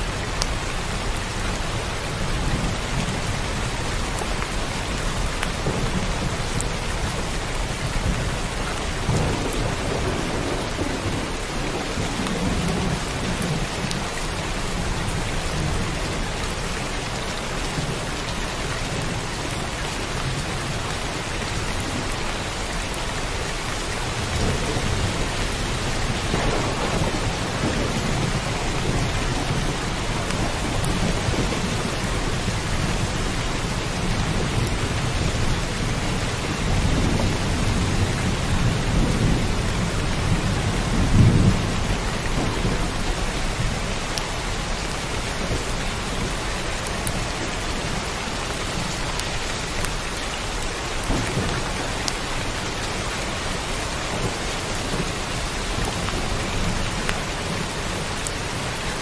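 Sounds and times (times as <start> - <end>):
heavy rain: 0.0 - 59.0
rolling thunder: 5.5 - 14.1, 24.1 - 43.9, 50.9 - 52.5.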